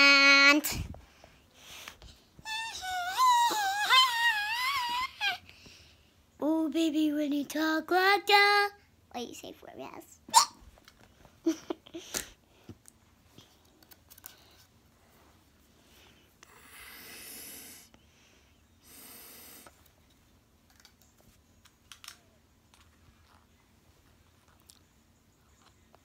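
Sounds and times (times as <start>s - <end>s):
soft breathy hisses: 15.0s - 20.0s.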